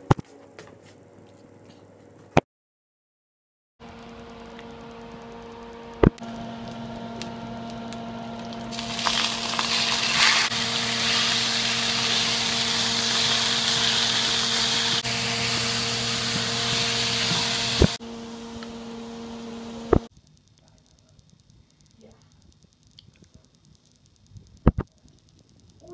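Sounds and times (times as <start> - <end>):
steady low hum: 3.8 - 25.9
meat sizzling in a pan: 8.7 - 18.0
sharp clicks: 19.9 - 25.9.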